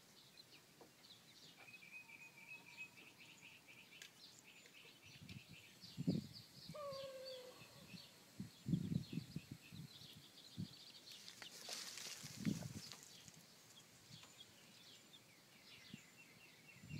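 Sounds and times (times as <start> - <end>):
hen call: 6.7 - 8.0
dirt rustling: 11.0 - 14.3.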